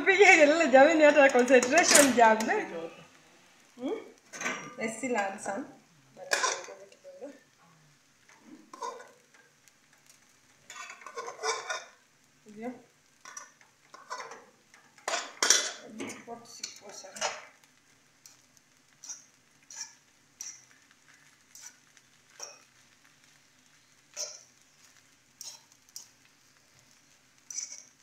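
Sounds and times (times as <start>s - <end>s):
utensil scraping rice in pan: 8.1s - 12.1s, 13.1s - 28.0s.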